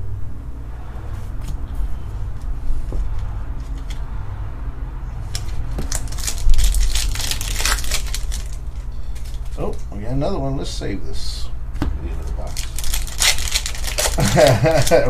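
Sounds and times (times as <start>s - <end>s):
card pack wrapper crinkling: 5.4s - 9.6s, 12.4s - 15.0s.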